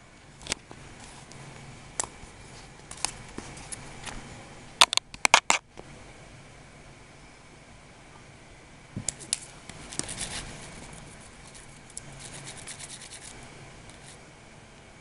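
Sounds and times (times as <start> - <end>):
kitten paws scratching paper: 2.4 - 3.8, 9.1 - 14.2.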